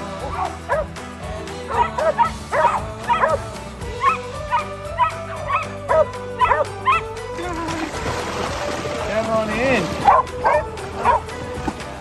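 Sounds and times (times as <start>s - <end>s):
background music: 0.0s - 12.0s
dogs barking: 0.2s - 0.9s, 1.7s - 7.2s, 10.0s - 11.3s.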